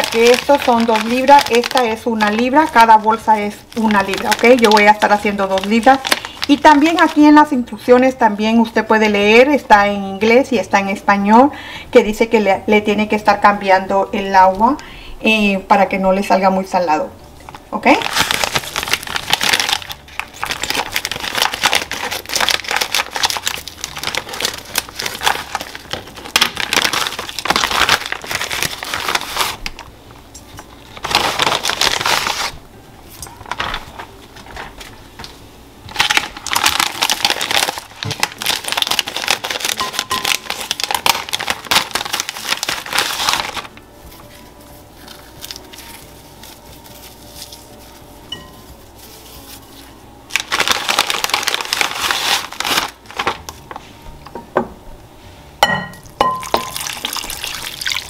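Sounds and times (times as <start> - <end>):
plastic bag crinkling: 0.0 - 7.5, 17.5 - 29.9, 30.7 - 35.0, 35.9 - 54.0, 56.5 - 58.0.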